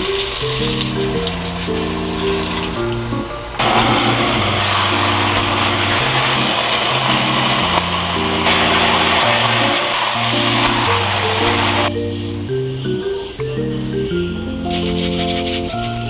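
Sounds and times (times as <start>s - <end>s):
sauce sizzling in a wok: 0.0s - 11.9s
slow background music: 0.0s - 16.0s.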